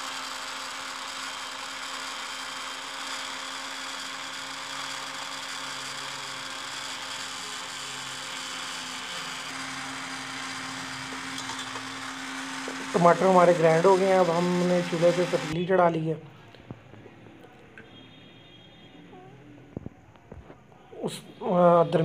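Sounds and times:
electric blender motor running: 0.0s - 15.6s.

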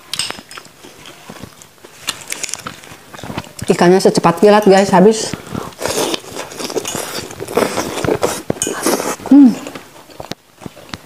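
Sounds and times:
wet chewing and slurping: 5.3s - 11.0s.

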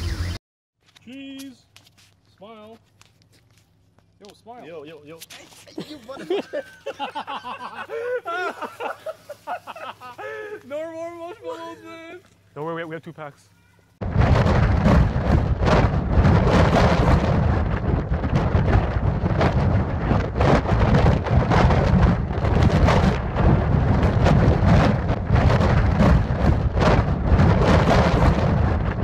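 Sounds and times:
wind buffeting microphone: 14.0s - 29.0s.

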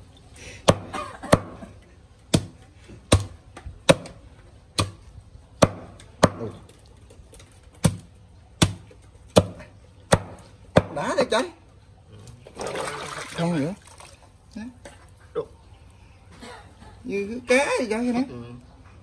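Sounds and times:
cleaver chopping on wooden block: 0.7s - 1.6s, 2.3s - 4.2s, 4.8s - 5.0s, 5.6s - 6.6s, 7.8s - 11.0s.

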